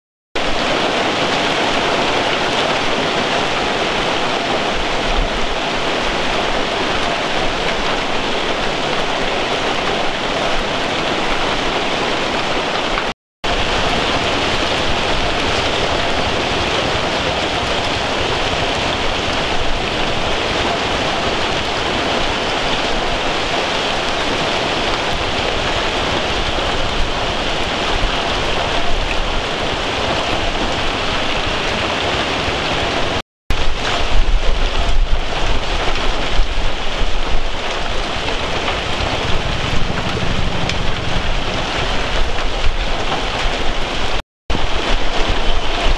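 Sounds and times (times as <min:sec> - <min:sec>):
hail and rain pelting the ground: 0:00.4 - 0:45.9.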